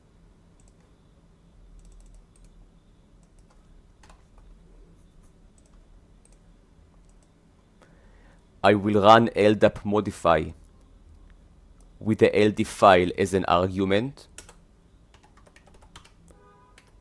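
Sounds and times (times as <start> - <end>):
computer keyboard clicks: 0.6 - 0.9, 1.8 - 2.6, 3.2 - 4.5, 14.3 - 16.2, 16.8 - 17.0
mouse clicks: 1.8 - 2.6.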